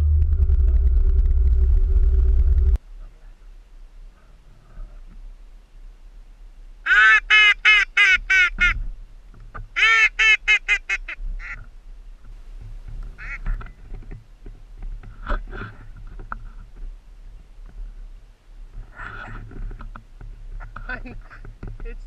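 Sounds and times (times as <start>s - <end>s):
duck call quacks: 6.9s - 8.8s, 9.8s - 11.6s.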